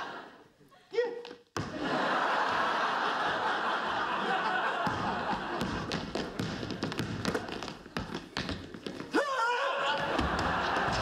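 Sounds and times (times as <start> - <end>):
audience laughing: 0.0 - 0.5, 1.7 - 5.9, 9.9 - 11.0
basketball dribbling on wooden floor: 4.8 - 9.1.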